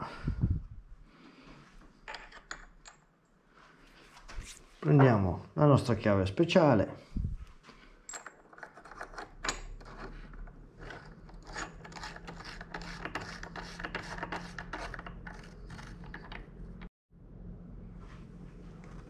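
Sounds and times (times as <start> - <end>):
lockring clicking and scraping: 8.0 - 16.9.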